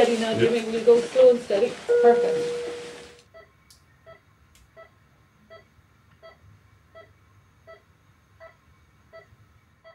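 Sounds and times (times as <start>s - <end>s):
patient monitor beeping: 1.9s - 3.5s.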